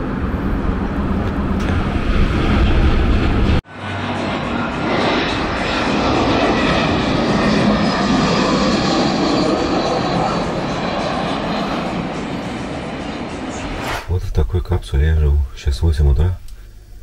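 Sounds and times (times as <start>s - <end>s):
jet airliner passing overhead: 0.0s - 16.1s.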